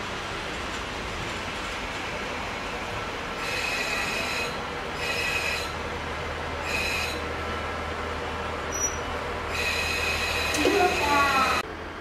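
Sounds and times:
train brakes squealing: 3.4 - 5.8, 6.6 - 7.2, 8.6 - 11.6.

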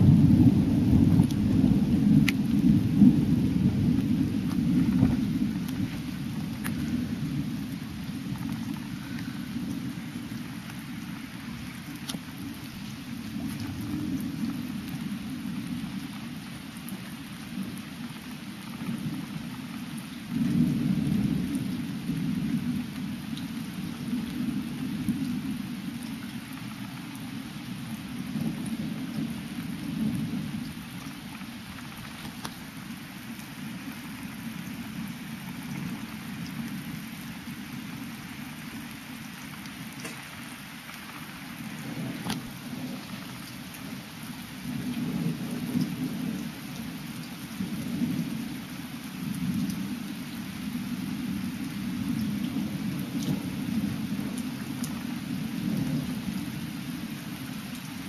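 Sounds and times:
thunder rumbling: 0.0 - 16.3, 20.3 - 25.8, 38.1 - 47.0
steady rain: 0.0 - 58.0.

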